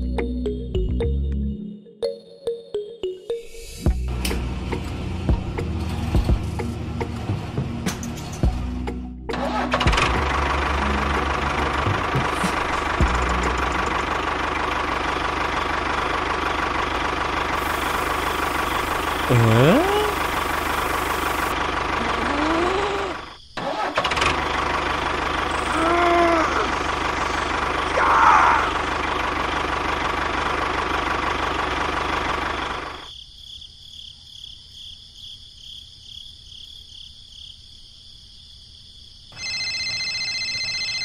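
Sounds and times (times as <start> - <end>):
vehicle engine running: 3.9 - 23.3, 23.9 - 33.1.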